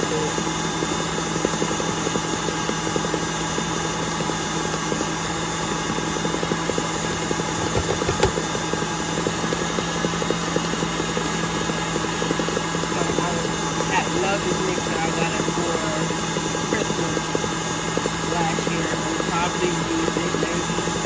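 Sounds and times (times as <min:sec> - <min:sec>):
stand mixer running: 0:00.0 - 0:21.0
knock: 0:07.6 - 0:08.4.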